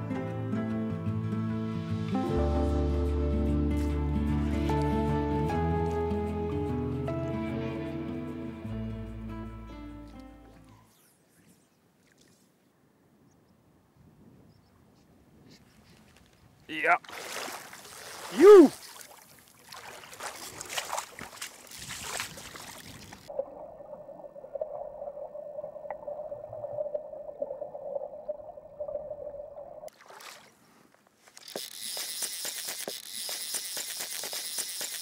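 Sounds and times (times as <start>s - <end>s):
water splashing and rushing: 16.9s - 30.6s
muffled underwater hum: 23.3s - 29.9s
fishing reel drag clicking: 31.3s - 35.0s.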